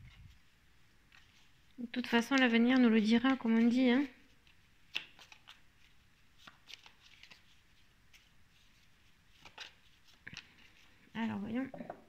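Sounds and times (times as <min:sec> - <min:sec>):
cards being shuffled: 0:01.0 - 0:11.0.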